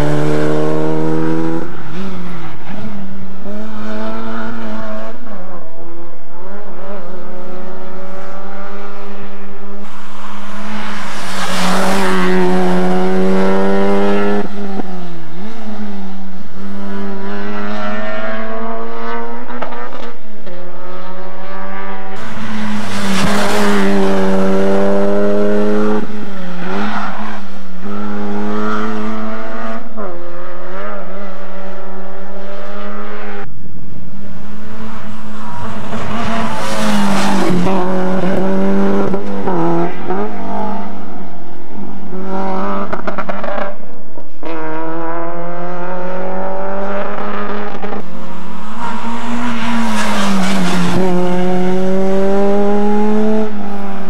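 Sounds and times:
rally car engine revving: 0.0s - 33.5s, 34.1s - 54.0s.

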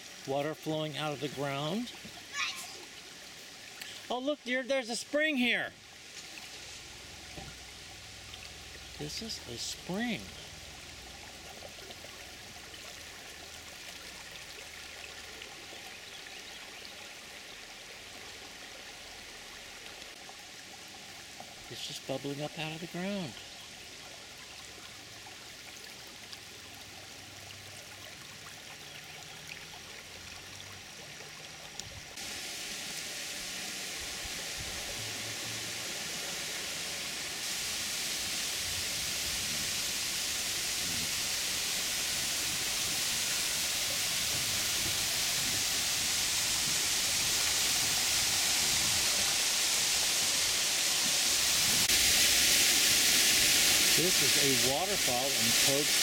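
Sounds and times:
waterfall rushing over rocks: 0.0s - 5.9s, 8.2s - 11.0s, 32.1s - 56.0s.

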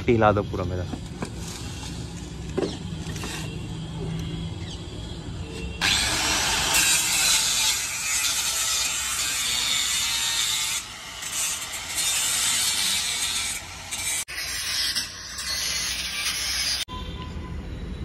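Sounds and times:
angle grinder cutting metal: 5.8s - 16.9s.

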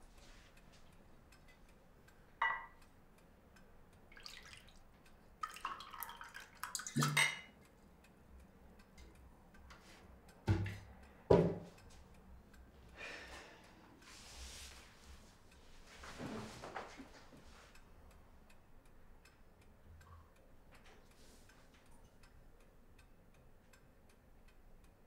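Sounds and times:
glass clink: 2.4s - 2.8s, 7.0s - 7.5s
wine pouring into a glass: 5.4s - 7.4s
glass knocks on hard surface: 10.5s - 11.6s.

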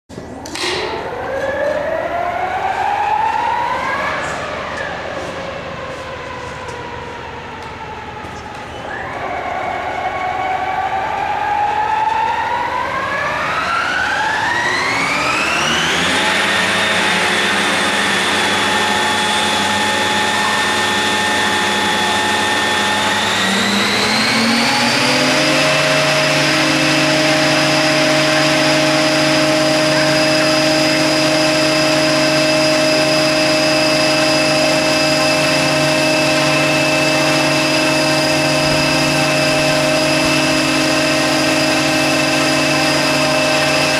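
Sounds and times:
model helicopter motor whine: 13.0s - 43.9s.

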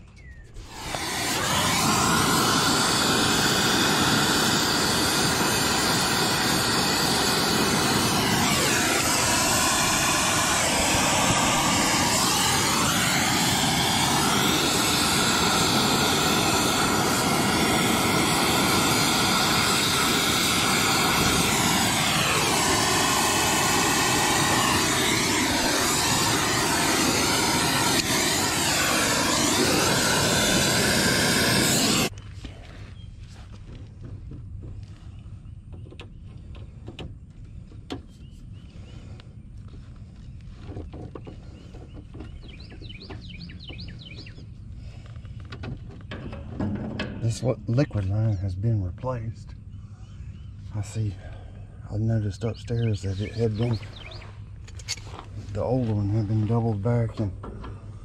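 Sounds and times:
torch flame rushing hiss: 0.5s - 32.1s, 52.7s - 54.2s.

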